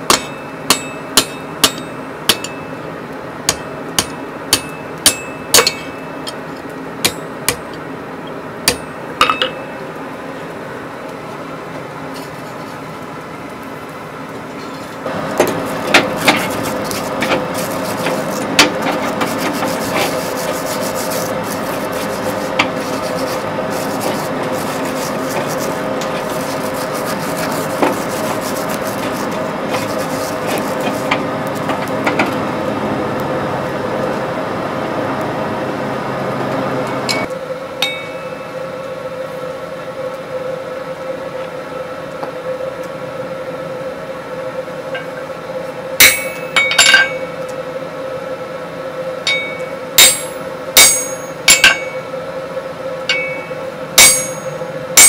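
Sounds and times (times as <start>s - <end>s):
tool scraping and clinking coals: 0.0s - 2.8s, 3.5s - 9.8s, 12.1s - 13.0s, 14.4s - 32.4s, 37.0s - 38.5s, 46.0s - 47.4s, 49.3s - 52.1s, 53.1s - 55.0s
forge air rushing with hum: 0.0s - 55.0s.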